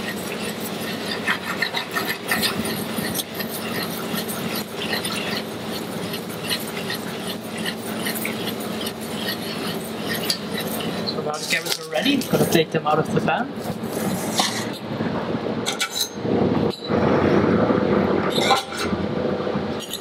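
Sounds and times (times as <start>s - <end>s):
butter sizzling and crackling: 0.0s - 12.4s
carrots scraping around pan: 0.0s - 12.6s
steady low hum: 0.0s - 20.0s.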